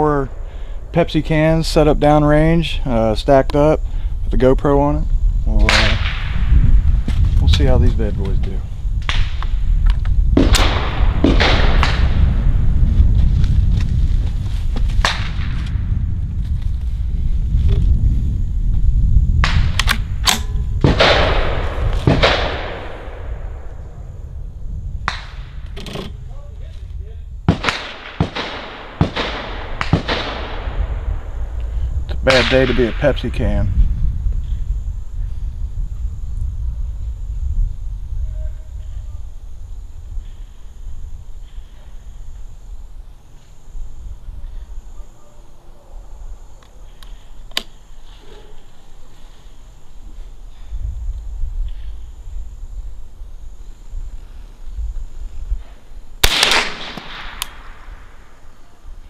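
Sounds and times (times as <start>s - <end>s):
low wind rumble: 0.0s - 59.0s
rifle shots echoing: 10.4s - 12.2s, 20.2s - 23.8s, 27.5s - 31.3s, 56.2s - 58.3s
lighter sharp cracks: 25.1s - 25.5s, 27.5s - 30.8s, 46.6s - 47.8s, 56.2s - 58.4s
insect trilling: 31.0s - 56.2s.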